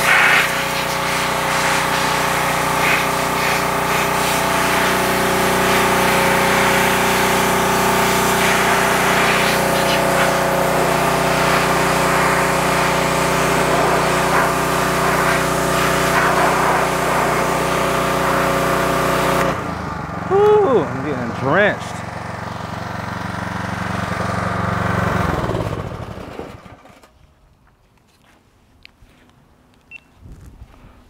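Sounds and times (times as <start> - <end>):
high-pressure water jet hiss: 0.0 - 19.6
pressure washer motor hum: 0.0 - 27.0.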